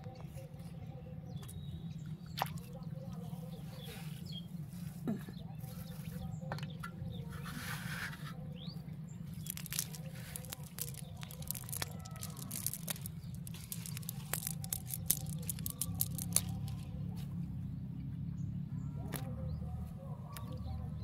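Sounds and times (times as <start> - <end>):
fishing net crackling on mud: 9.3 - 17.0.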